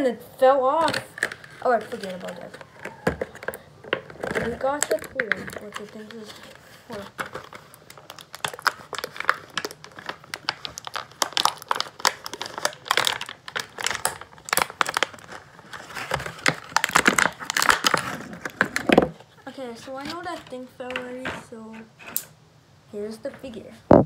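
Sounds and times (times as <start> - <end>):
plastic packaging crinkling: 0.8 - 19.2.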